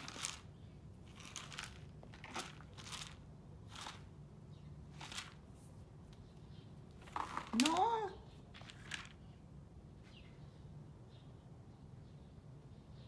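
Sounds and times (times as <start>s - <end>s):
rabbit crunching pellets: 0.0s - 6.2s, 6.9s - 9.3s.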